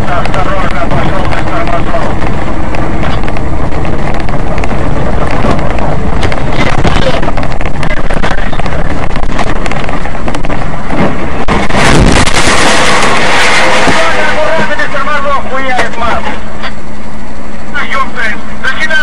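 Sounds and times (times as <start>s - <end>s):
wind buffeting microphone: 0.0s - 15.0s
harsh vehicle noise: 0.0s - 19.0s.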